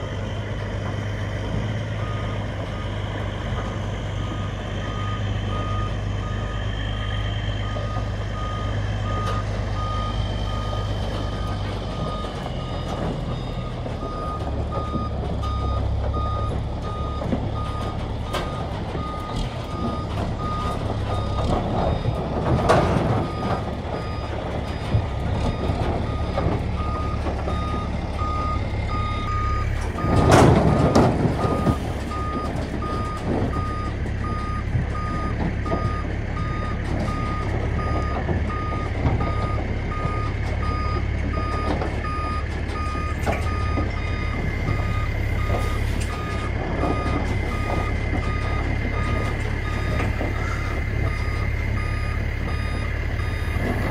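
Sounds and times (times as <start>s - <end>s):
diesel engine drone: 0.0s - 53.9s
backup alarm beeping: 23.2s - 53.9s.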